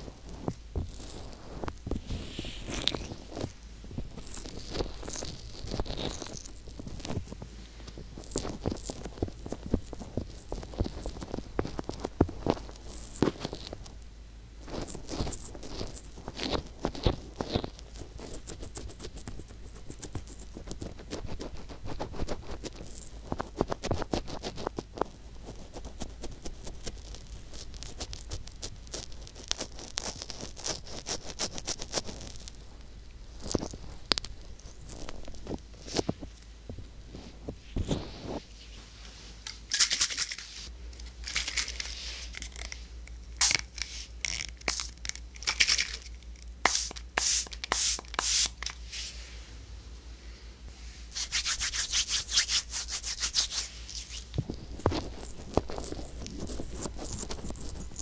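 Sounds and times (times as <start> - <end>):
fingertips rubbing microphone ear: 0.0 - 7.4, 51.2 - 58.0
short hissing spurts: 46.6 - 49.3.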